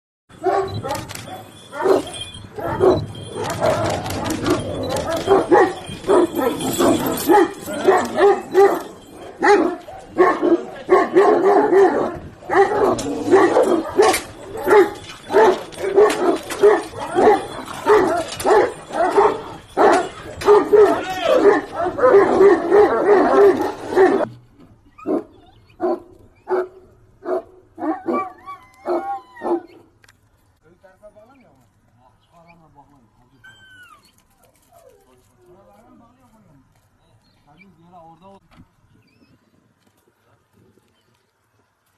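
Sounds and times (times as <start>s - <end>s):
large dogs barking: 0.3s - 24.3s, 25.0s - 30.0s.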